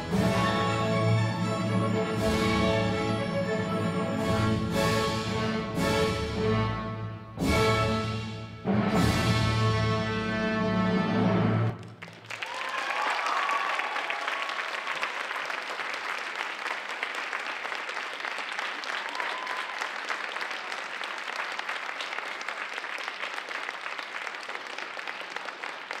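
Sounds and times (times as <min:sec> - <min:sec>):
audience applauding: 0:11.7 - 0:26.0.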